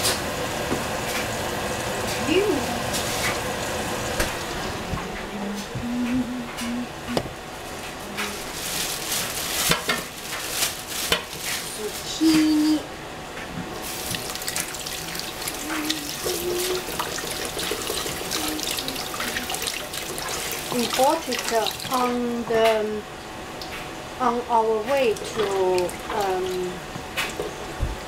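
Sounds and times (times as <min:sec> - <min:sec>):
tap water running into sink: 0:13.8 - 0:22.2, 0:24.8 - 0:27.6.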